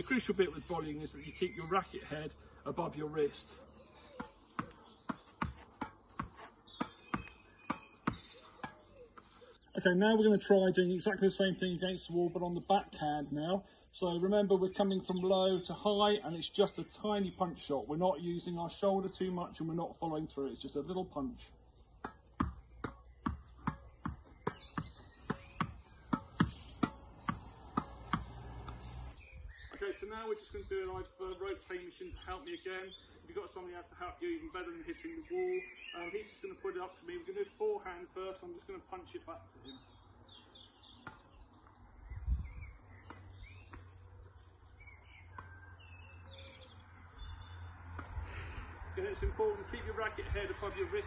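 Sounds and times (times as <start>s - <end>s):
birds chirping and singing: 0.0s - 51.0s
tennis ball hitting racket and wall: 4.1s - 9.2s, 21.9s - 29.1s.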